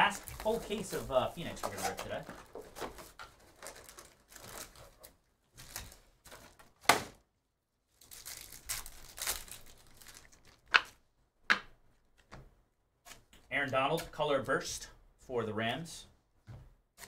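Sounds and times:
foil pack crinkling: 0.0 - 6.6, 8.0 - 10.7
plastic wrap crinkling and tearing: 0.0 - 6.7, 7.9 - 11.0.

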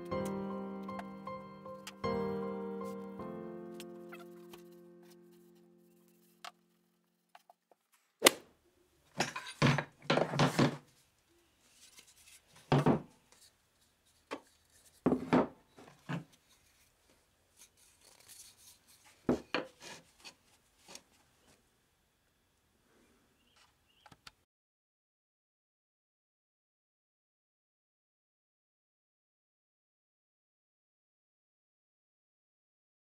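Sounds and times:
tools knocking on wooden bench: 12.7 - 13.1, 15.1 - 15.6.

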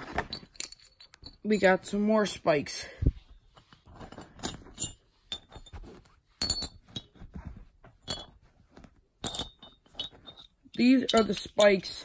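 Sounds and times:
metal spikes clinking: 0.3 - 1.8, 4.0 - 5.8, 8.0 - 8.4, 9.2 - 12.0.

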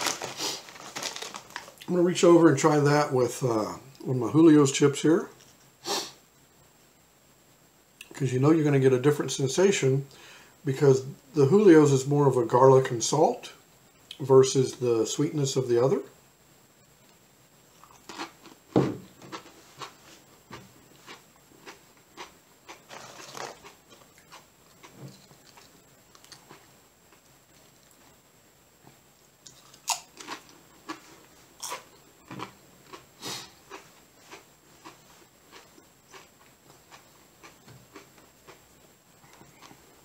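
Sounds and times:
person crunching tortilla chip: 0.0 - 1.9, 17.8 - 18.6, 20.9 - 26.7, 29.4 - 36.3.

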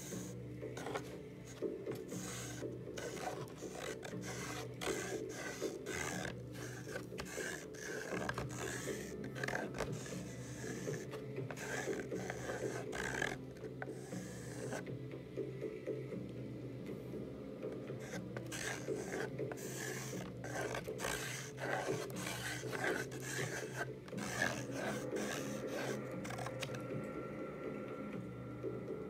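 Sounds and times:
charcoal scraping on canvas: 0.0 - 14.9, 17.9 - 26.8.

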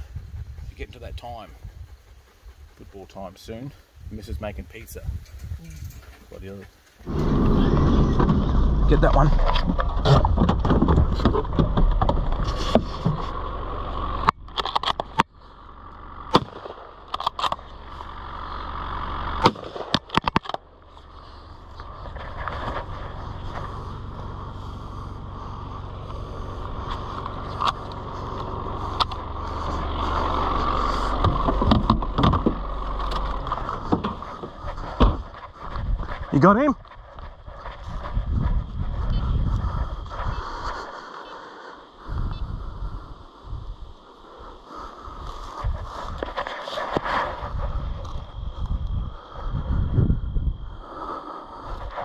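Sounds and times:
car engine rumbling: 7.0 - 52.0
sharp knocks and clicks: 9.4 - 13.2, 31.2 - 35.2.

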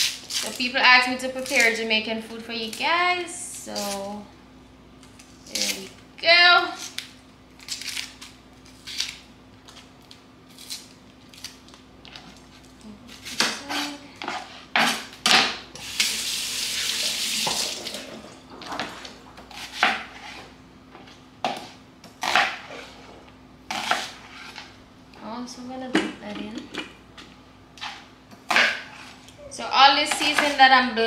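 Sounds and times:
faucet running: 15.8 - 18.3.

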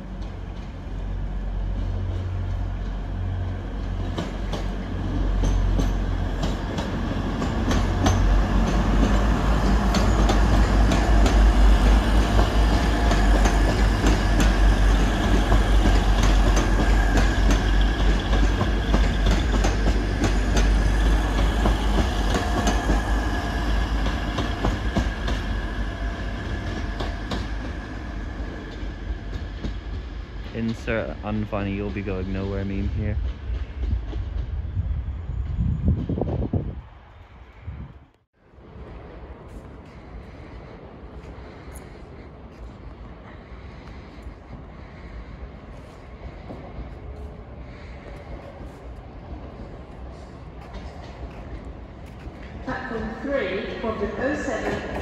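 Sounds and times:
train wheels clicking over joints: 3.8 - 32.5.

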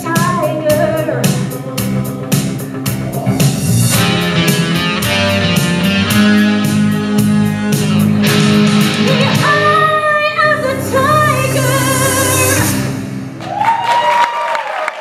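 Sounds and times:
rock music with singing and guitar: 0.0 - 13.2
applause: 13.4 - 15.0.

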